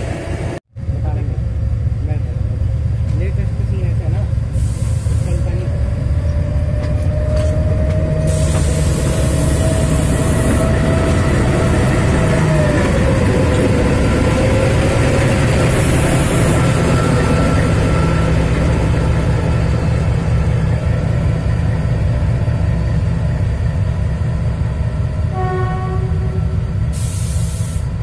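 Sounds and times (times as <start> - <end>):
diesel locomotive engines rumbling: 0.0 - 28.0
hiss bursts: 4.5 - 5.3, 8.3 - 10.6, 26.9 - 27.9.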